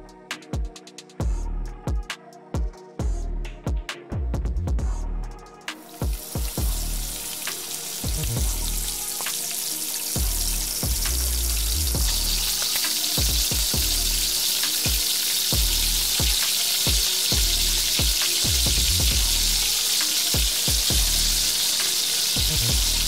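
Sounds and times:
food deep-frying in hot oil: 5.9 - 23.0.

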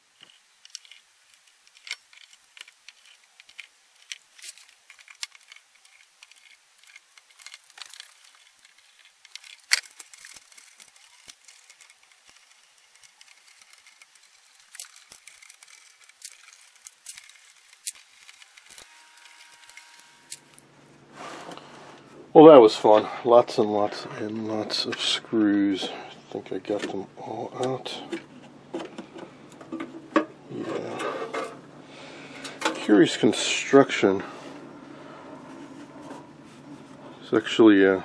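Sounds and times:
screwdriver clicking and scraping metal: 0.2 - 20.6.

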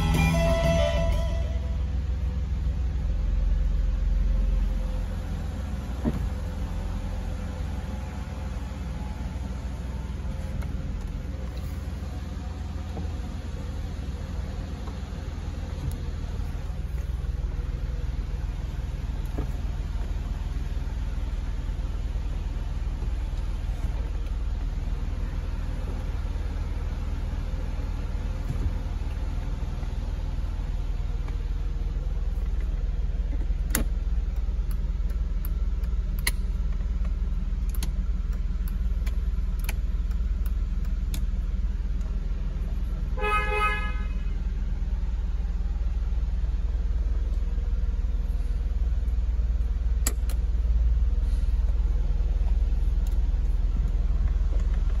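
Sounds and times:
car horn toot: 0.0 - 2.0, 43.1 - 44.4
car engine idling: 0.0 - 55.0.

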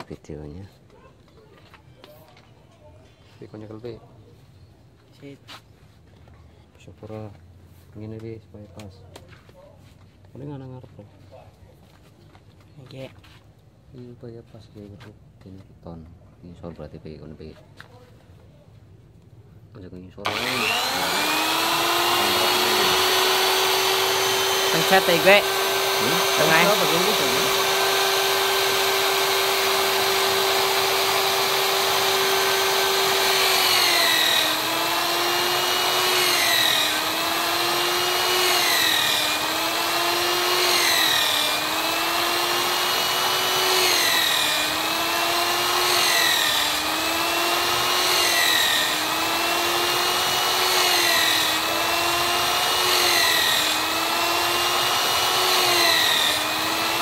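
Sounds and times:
electric drill boring into wood: 20.2 - 57.0.

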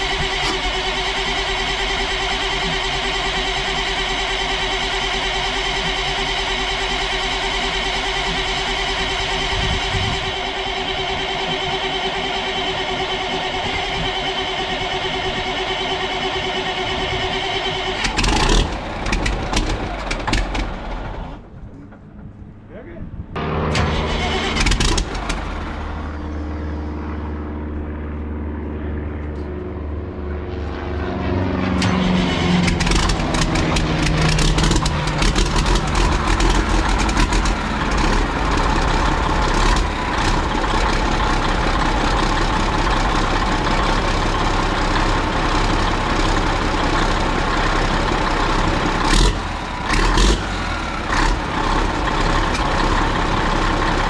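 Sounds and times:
diesel engine cranking and starting: 0.0 - 22.7, 23.3 - 28.0, 31.5 - 54.0.

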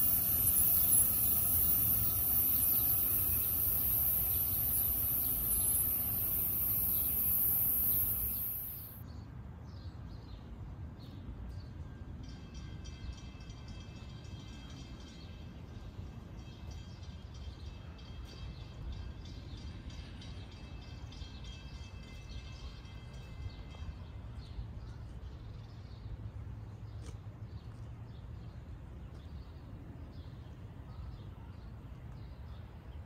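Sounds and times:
birds chirping: 0.0 - 9.0
faint high ringing: 0.0 - 9.0.

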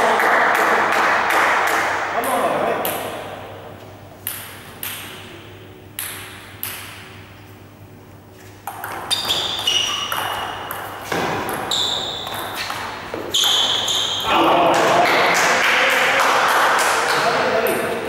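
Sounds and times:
table tennis ball knocking: 6.0 - 7.2, 8.6 - 15.4.

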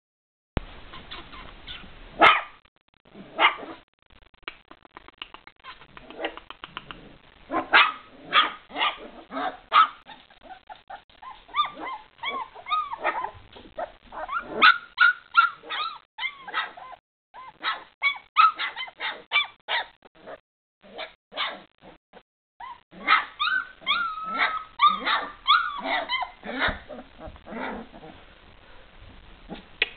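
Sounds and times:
whiny puppy yelps: 0.9 - 2.5, 7.5 - 20.0, 20.9 - 21.7, 22.6 - 28.1
puppy yapping: 0.9 - 2.6, 3.3 - 3.8, 7.5 - 19.9, 20.9 - 21.7, 22.6 - 28.2.

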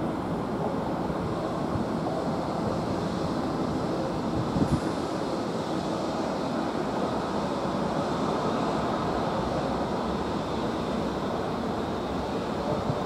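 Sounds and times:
jet engines rushing: 0.0 - 13.0
wind buffeting microphone: 1.2 - 6.0.

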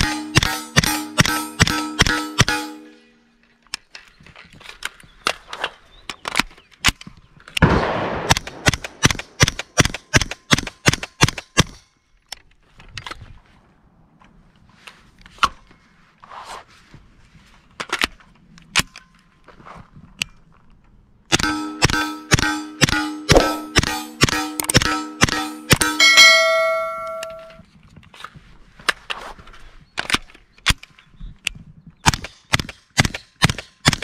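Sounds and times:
suppressed submachine gun shots: 7.6 - 9.6.

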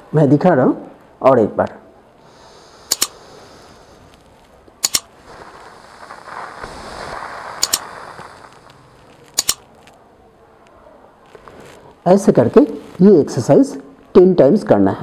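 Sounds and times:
breath hissing out through mouth: 2.2 - 9.5
double mouse-click sound effects: 2.9 - 3.1, 4.8 - 5.0, 9.4 - 9.6.

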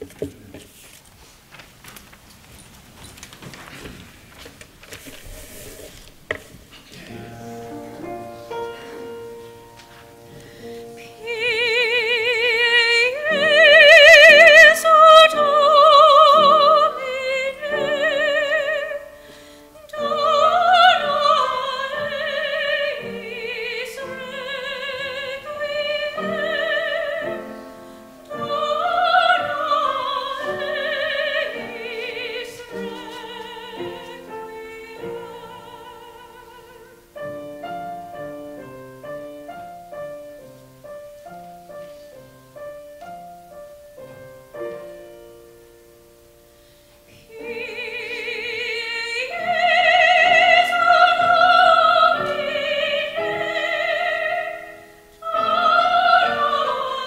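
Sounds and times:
piano: 0.0 - 57.0
solo singer with vibrato: 10.9 - 37.4, 47.2 - 57.0.

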